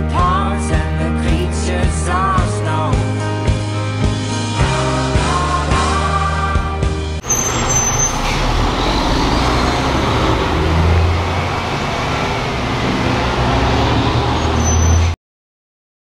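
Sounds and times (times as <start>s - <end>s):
heavy trucks passing: 4.2s - 15.2s.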